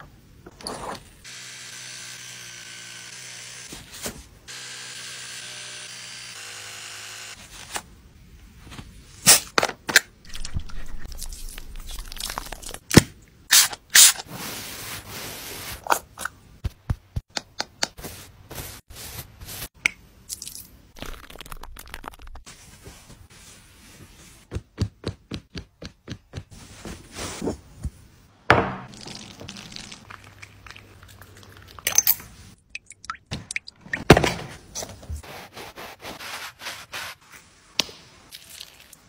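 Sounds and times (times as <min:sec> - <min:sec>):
electric grooming tool buzzing: 0:01.2 - 0:03.7, 0:04.5 - 0:07.4.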